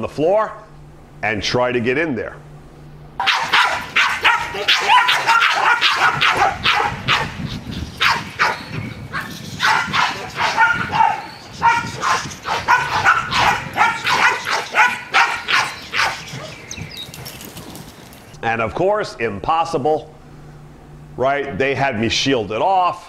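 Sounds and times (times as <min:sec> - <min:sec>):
dogs barking: 0:03.2 - 0:17.5.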